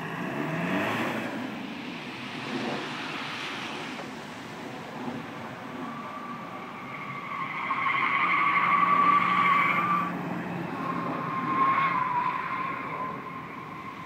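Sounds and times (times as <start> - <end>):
car tyres squealing: 5.6 - 14.0.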